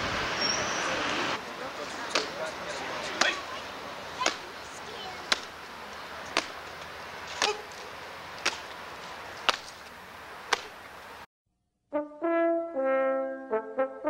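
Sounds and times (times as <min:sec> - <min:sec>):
boots stamping on stone: 0:05.3 - 0:09.9.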